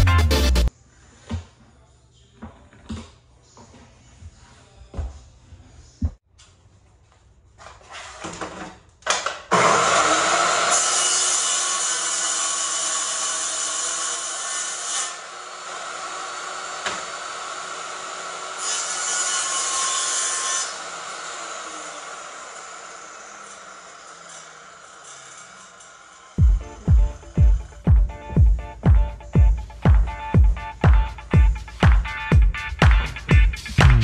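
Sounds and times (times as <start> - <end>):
table saw cutting: 9.5 - 27.8.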